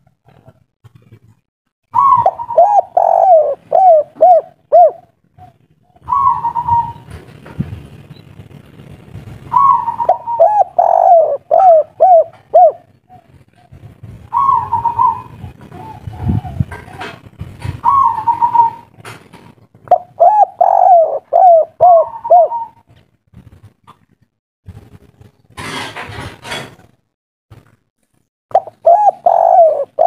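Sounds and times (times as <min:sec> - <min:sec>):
dove cooing: 0:01.9 - 0:07.2, 0:09.5 - 0:19.0, 0:19.9 - 0:23.0, 0:28.5 - 0:30.0.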